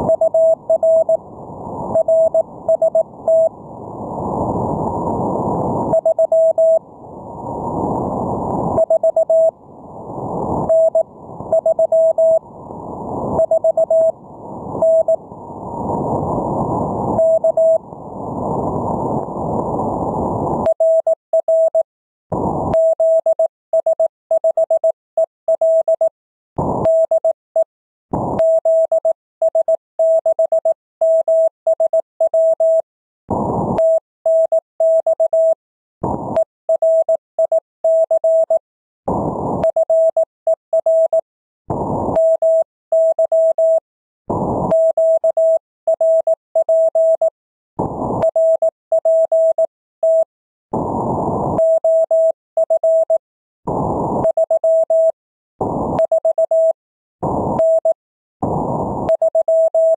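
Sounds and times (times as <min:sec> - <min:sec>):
morse code tone: 0:00.0 - 0:01.2, 0:17.2 - 0:17.8, 0:39.6 - 0:41.2, 0:48.2 - 0:50.3, 0:51.6 - 0:53.2, 0:54.2 - 0:55.2, 0:59.1 - 0:59.9.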